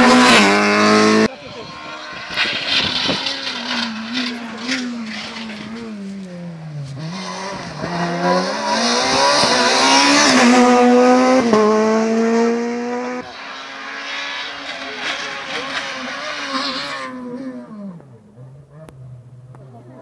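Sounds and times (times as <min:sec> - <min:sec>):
rally car engine at high revs: 0:00.0 - 0:20.0.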